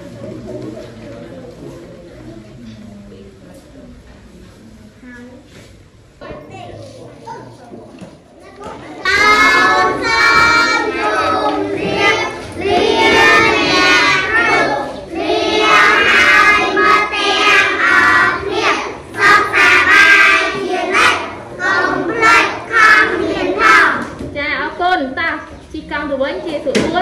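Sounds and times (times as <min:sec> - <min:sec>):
children chanting in chorus: 0:09.0 - 0:24.2.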